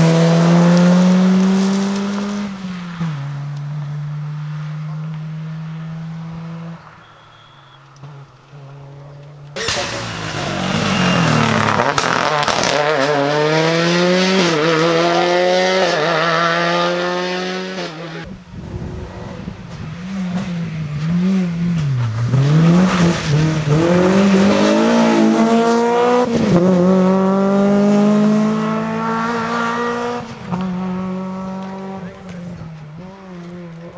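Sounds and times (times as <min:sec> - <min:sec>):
rally car engines revving: 0:00.0 - 0:33.9.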